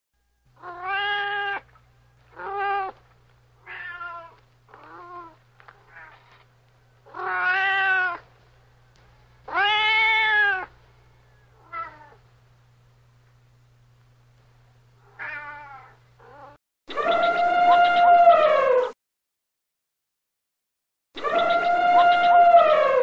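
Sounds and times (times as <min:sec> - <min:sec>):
cat meowing: 0:00.6 - 0:01.7, 0:02.3 - 0:03.0, 0:03.6 - 0:06.4, 0:07.1 - 0:08.2, 0:09.5 - 0:10.7, 0:11.6 - 0:12.2, 0:15.0 - 0:18.9, 0:21.3 - 0:22.7.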